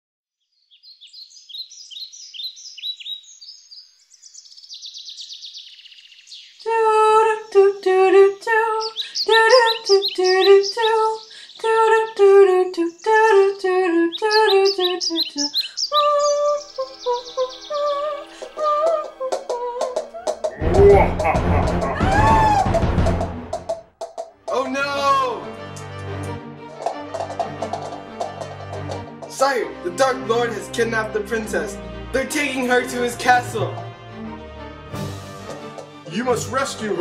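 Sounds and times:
birds chirping and trilling: 0.4s - 22.6s, 26.8s - 37.0s
woman singing wordless melody: 6.5s - 20.4s.

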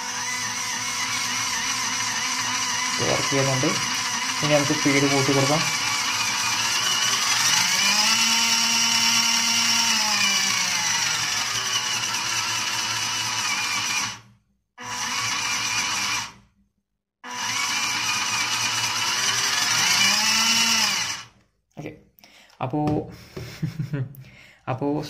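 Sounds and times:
toy car motor whining: 0.0s - 14.2s, 14.8s - 16.4s, 17.2s - 21.3s.

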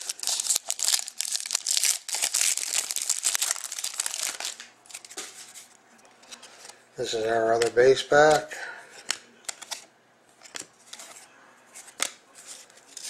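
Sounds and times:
foil wrapper crinkling: 0.0s - 5.2s.

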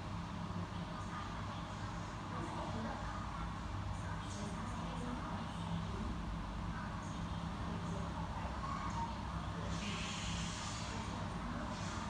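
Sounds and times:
hiss: 9.7s - 12.0s.

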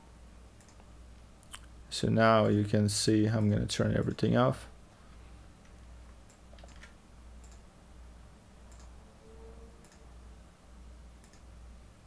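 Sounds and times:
faint low hum: 0.0s - 12.0s
computer mouse clicks: 0.6s - 1.7s, 6.2s - 7.7s, 8.7s - 9.0s, 9.8s - 10.1s, 11.2s - 11.5s.

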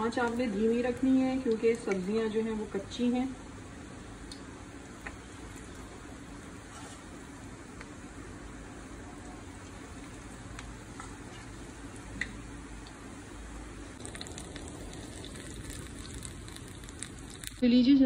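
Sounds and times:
food sizzling in hot oil: 11.6s - 17.6s.

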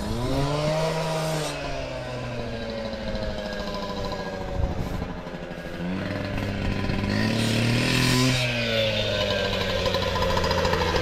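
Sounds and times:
two-stroke engine revving: 0.0s - 11.0s.

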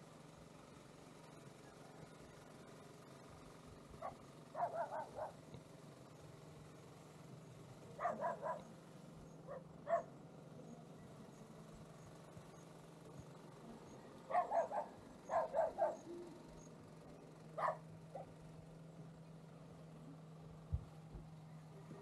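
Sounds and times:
dog barking: 4.0s - 5.4s, 8.0s - 8.7s, 9.5s - 10.1s, 14.3s - 16.1s, 17.6s - 18.4s.

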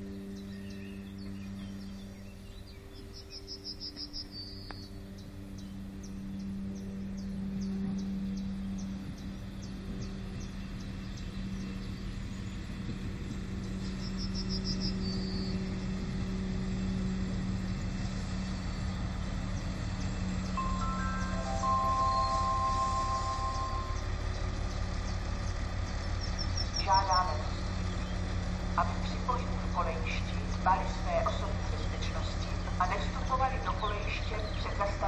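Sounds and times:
diesel railcar engine drone: 0.0s - 35.0s
insects chirping: 0.5s - 6.5s.

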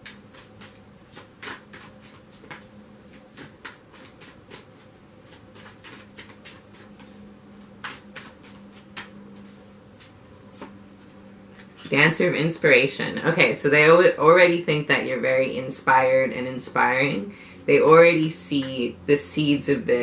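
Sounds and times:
cards being shuffled: 0.0s - 10.8s
faint steady hum: 0.0s - 20.0s.

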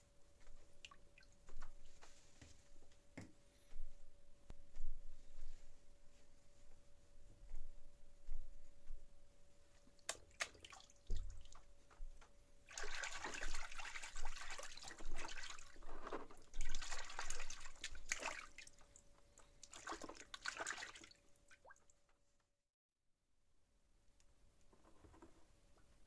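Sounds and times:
hand stirring water in basin: 12.7s - 19.0s, 19.6s - 21.8s.

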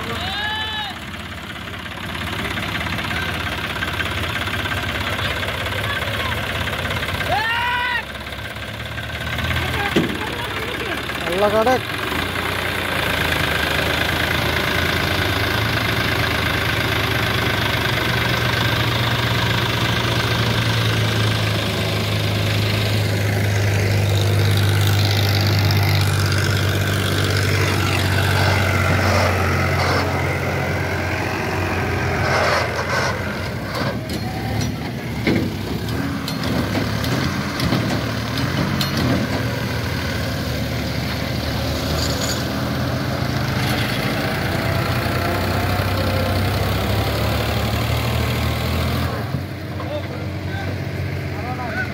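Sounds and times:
tractor engine droning: 0.0s - 51.9s
short engine knocks: 9.8s - 10.4s, 33.7s - 39.6s.

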